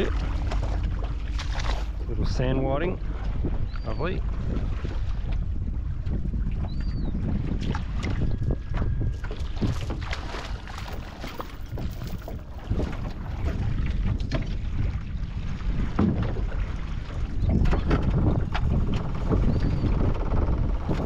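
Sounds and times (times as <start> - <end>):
wading splashes in shallow water: 0.0 - 19.9
wind buffeting microphone: 0.0 - 21.0
anchor chain hauled in: 10.8 - 12.6.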